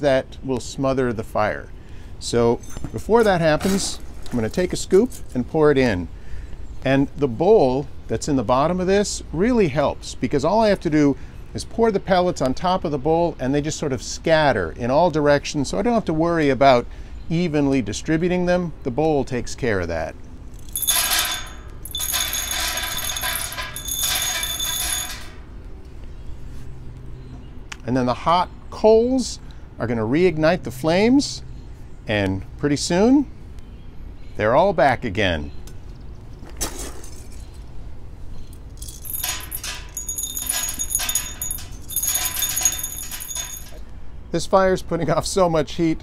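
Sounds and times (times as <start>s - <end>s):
pellets rattling into metal bowl: 38.8s - 43.8s.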